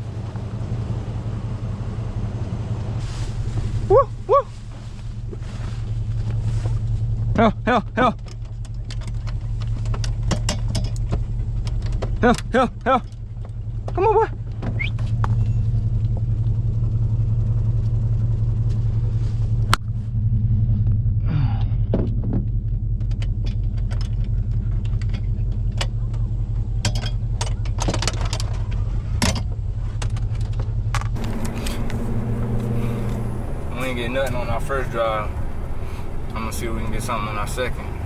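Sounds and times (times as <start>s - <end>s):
truck engine idling: 0.0s - 38.0s
metallic latch clicks and rattles: 8.2s - 12.2s, 26.8s - 31.2s.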